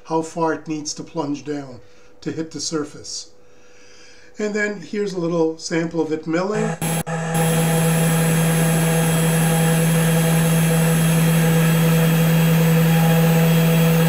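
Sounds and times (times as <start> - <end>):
spindle motor humming with hiss: 6.6 - 14.0.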